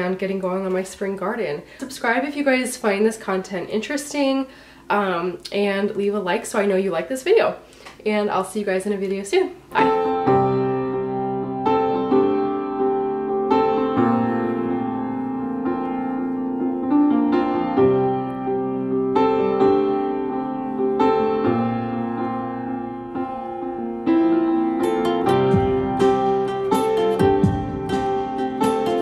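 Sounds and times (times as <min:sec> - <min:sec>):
piano playing slow chords: 0:09.8 - 0:29.0.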